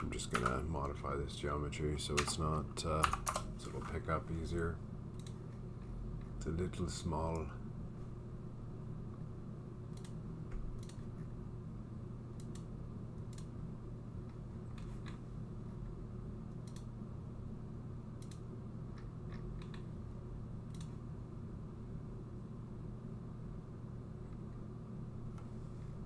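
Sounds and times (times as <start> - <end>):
steady low hum: 0.0 - 26.0
computer mouse clicking: 0.2 - 0.9, 5.1 - 5.6, 9.9 - 11.1, 12.4 - 13.5, 14.3 - 15.2, 16.5 - 16.9, 18.2 - 19.9, 20.7 - 21.0.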